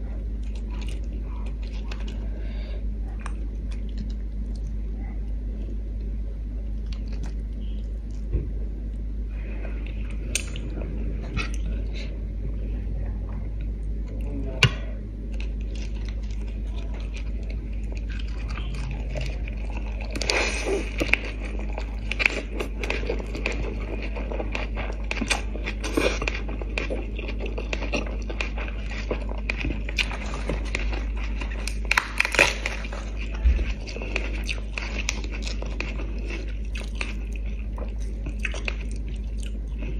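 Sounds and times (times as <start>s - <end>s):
steady low hum: 0.0s - 39.9s
crunchy chewing and mouth smacks: 0.2s - 2.3s, 3.1s - 12.0s, 13.5s - 39.9s.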